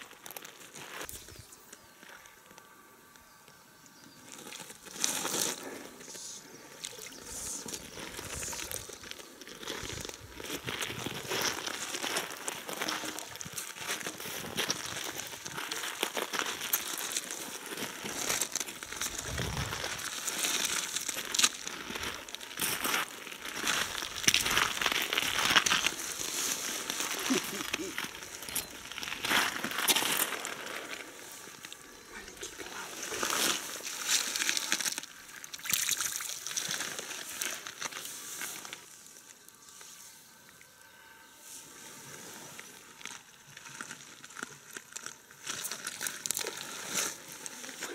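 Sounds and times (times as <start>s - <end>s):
boots crunching on gravel: 7.5s - 35.0s
splashing in shallow water: 34.1s - 37.1s.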